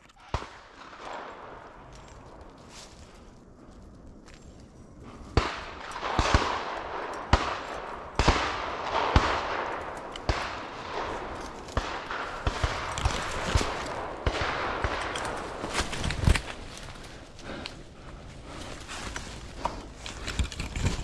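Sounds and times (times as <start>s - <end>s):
twigs and branches snapping: 9.2s - 21.0s
dry leaves crunching underfoot: 15.2s - 17.2s
brush scraping and rustling: 18.6s - 21.0s.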